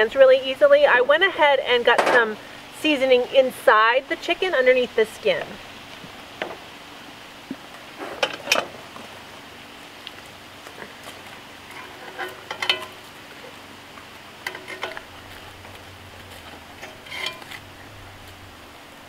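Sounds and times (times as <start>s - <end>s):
metal tongs clinking on cast iron: 11.7s - 13.0s, 14.4s - 15.1s, 16.8s - 17.6s.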